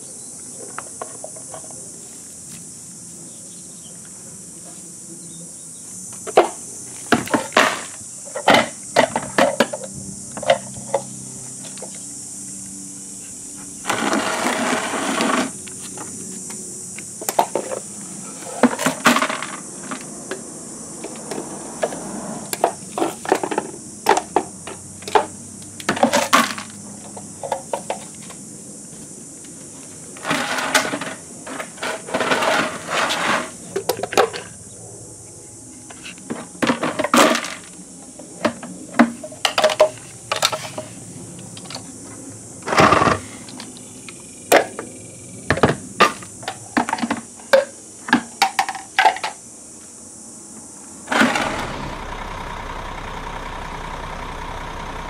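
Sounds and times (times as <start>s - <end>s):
garbage truck running: 51.1s - 55.0s.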